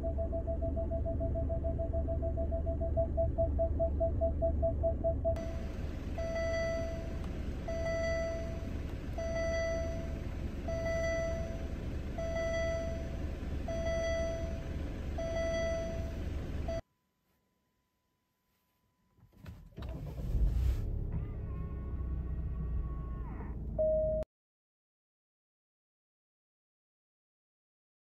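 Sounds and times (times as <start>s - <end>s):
car running hum: 0.0s - 16.8s, 19.3s - 24.2s
car warning chime: 4.0s - 16.8s.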